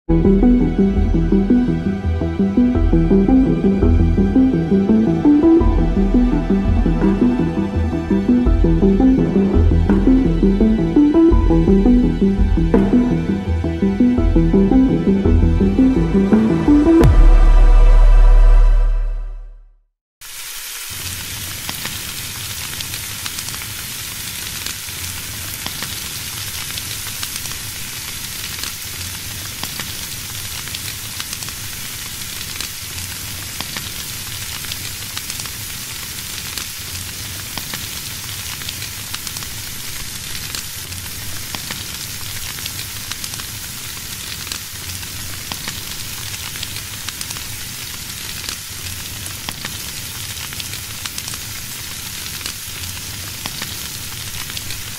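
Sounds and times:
bacon sizzling in a frying pan: 20.2 - 54.9.

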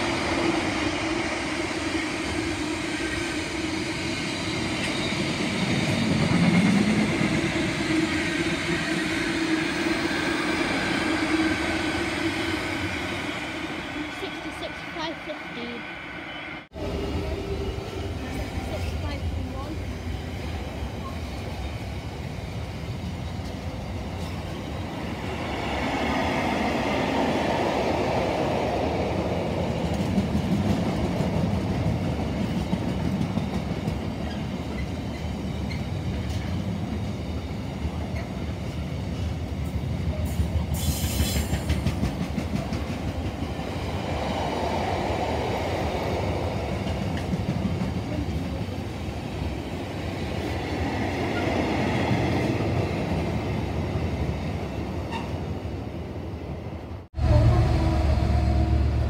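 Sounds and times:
freight train wheels clattering: 39.6 - 43.6.

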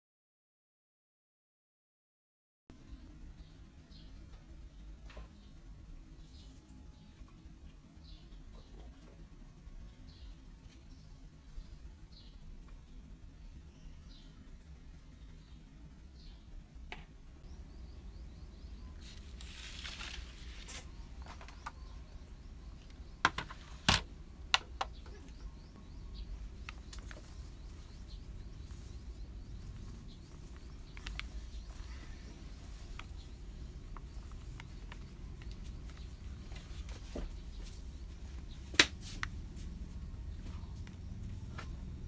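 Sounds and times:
plastic bag rustling: 19.0 - 21.4.

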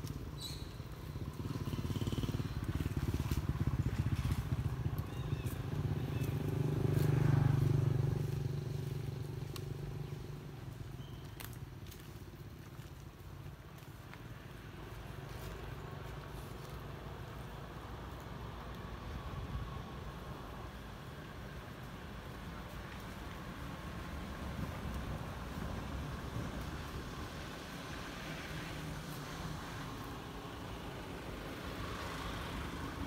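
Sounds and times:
vehicle engine passing: 0.0 - 11.0, 22.2 - 33.0.

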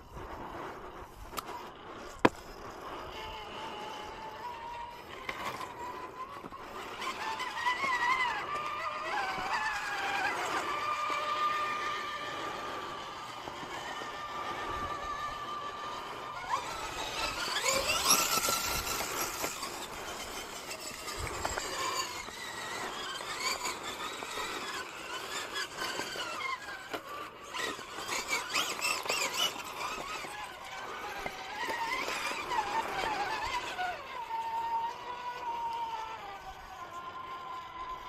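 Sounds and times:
electric motor and gears whining: 0.0 - 38.0
clicks and scrapes: 16.0 - 33.8.

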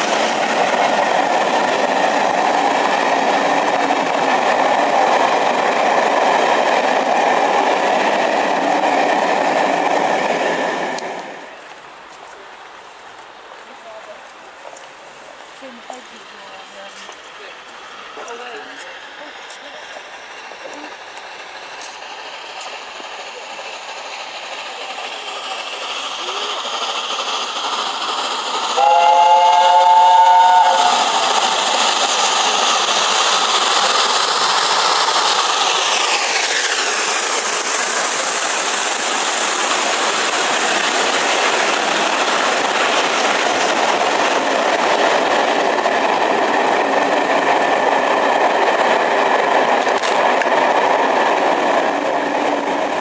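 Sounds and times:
rail noise: 0.0 - 53.0
rush of steam: 0.0 - 53.0
train coaches rolling past: 0.0 - 53.0
steam locomotive chime whistle: 28.8 - 31.1.

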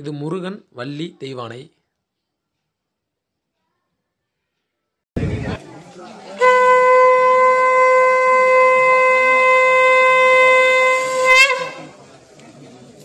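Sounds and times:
conch shell blown: 6.4 - 12.0.

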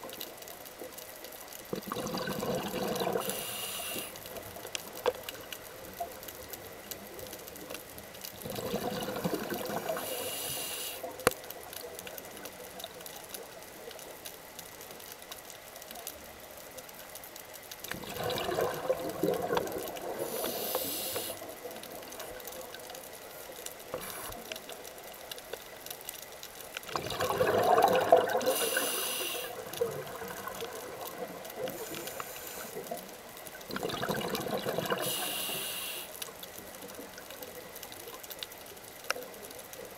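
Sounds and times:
exhaled bubbles underwater: 1.7 - 4.2, 8.4 - 10.7, 17.9 - 22.4, 26.9 - 36.0
regulator inhalation hiss: 3.1 - 4.2, 9.8 - 11.2, 20.2 - 21.5, 28.4 - 29.7, 31.7 - 32.9, 34.9 - 36.2.

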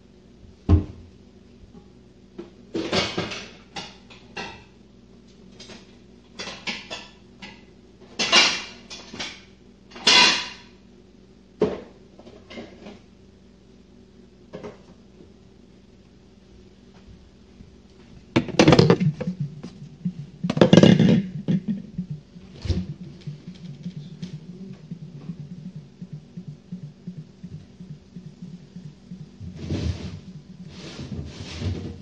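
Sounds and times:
kitchen chopper knock: 18.4 - 19.8, 20.4 - 31.9
chopper clattering and rattling: 18.4 - 29.6.

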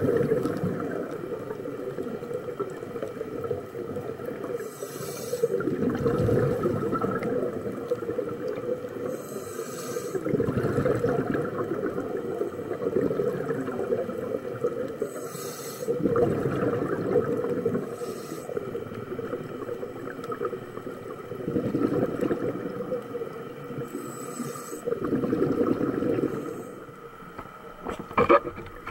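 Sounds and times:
bubbling exhale underwater: 0.0 - 4.7, 5.3 - 9.3, 10.0 - 15.1, 15.8 - 26.8
regulator inhale hiss: 4.4 - 5.7, 8.8 - 10.3, 14.8 - 16.0, 17.7 - 19.0, 23.7 - 25.0, 26.1 - 27.0.

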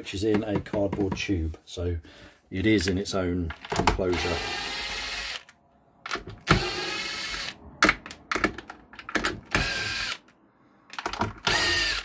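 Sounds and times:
cordless drill motor running: 4.2 - 5.5, 6.5 - 7.6, 9.5 - 10.2, 11.4 - 12.0.

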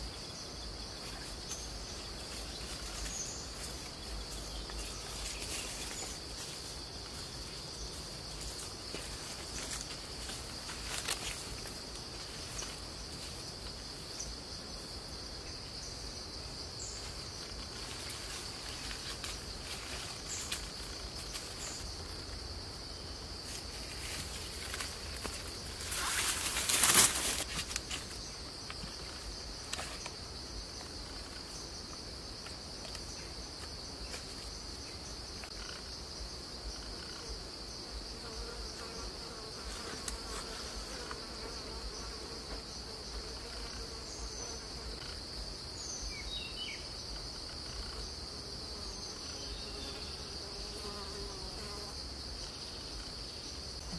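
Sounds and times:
rustling in vegetation: 0.0 - 15.2, 16.2 - 37.0
insects droning: 0.0 - 53.9.

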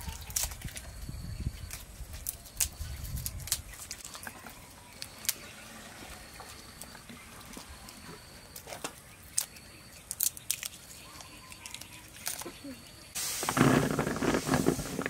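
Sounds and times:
garlic skins crackling: 0.0 - 1.0, 1.6 - 5.4, 8.5 - 15.0.

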